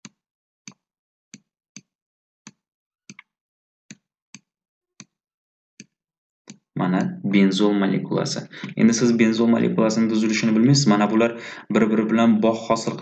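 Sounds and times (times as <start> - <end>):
stylus tapping clicks: 0.0 - 1.9, 2.5 - 3.3, 3.9 - 5.2, 5.8 - 7.2.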